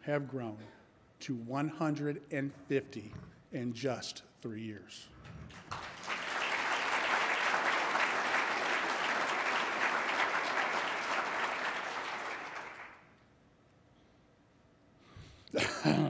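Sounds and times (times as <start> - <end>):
audience applauding: 5.2 - 13.1.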